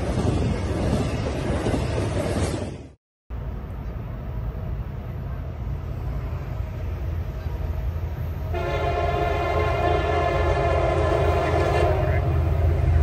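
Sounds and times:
train rumble: 0.0s - 13.0s
locomotive air horn blast: 8.5s - 12.8s.

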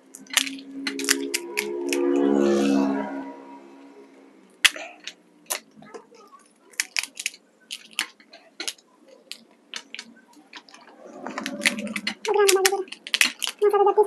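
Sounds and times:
crisp shells cracking and crunching: 0.1s - 2.0s, 4.6s - 5.7s, 6.3s - 13.8s.

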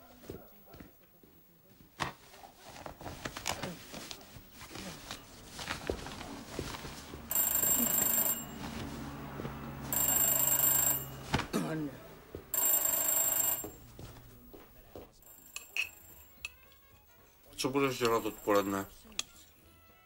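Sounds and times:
electric bell ringing: 7.3s - 8.9s, 9.7s - 11.3s, 12.5s - 13.9s, 18.0s - 18.9s
knocks and rustling of coat: 8.0s - 9.9s, 11.2s - 11.6s.

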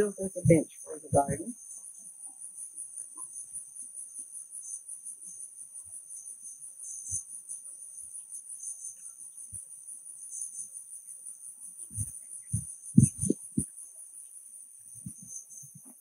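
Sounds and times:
soft low thuds: 11.9s - 13.7s.

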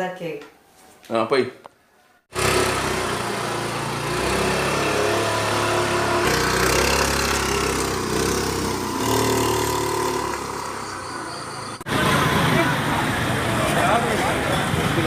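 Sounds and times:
motor scooter engine running: 2.3s - 14.0s.

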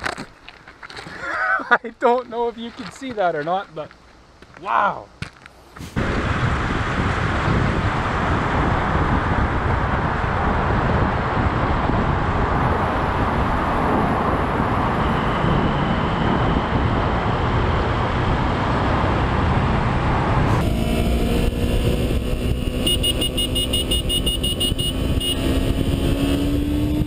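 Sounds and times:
wind rush: 5.6s - 27.0s
motorcycle riding through tunnel: 7.8s - 27.0s.

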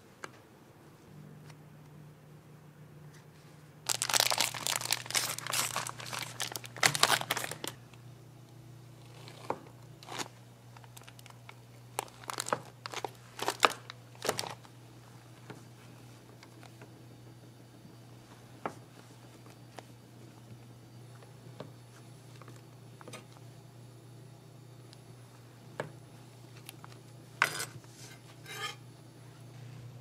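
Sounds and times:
faint low hum: 0.0s - 30.0s
wrapping material crinkling: 3.8s - 7.9s, 9.0s - 14.7s.

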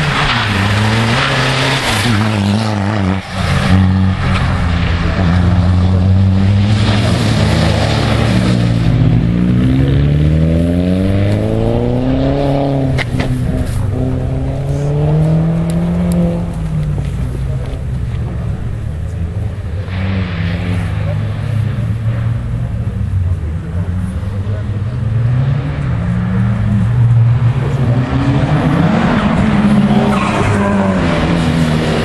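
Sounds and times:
rally car engine accelerating: 0.0s - 32.0s.

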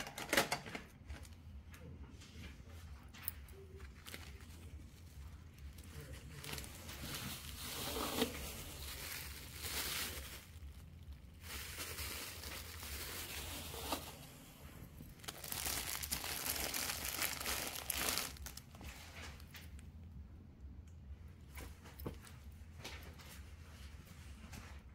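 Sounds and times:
packaging crinkling: 3.7s - 19.6s.

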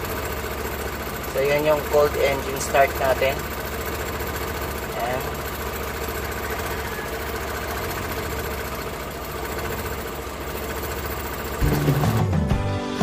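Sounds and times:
car engine idling: 0.0s - 12.6s
music: 11.6s - 13.0s.

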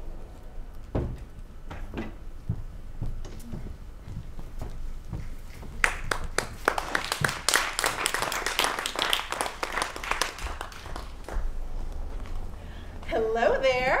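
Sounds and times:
hand clapping: 5.8s - 11.5s.

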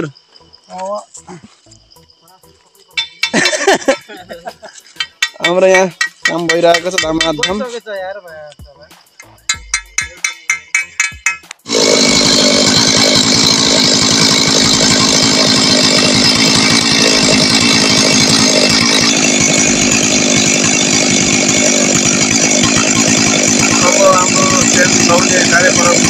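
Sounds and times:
chainsaw running at high revs: 3.1s - 4.4s, 5.2s - 7.5s, 9.6s - 26.0s.

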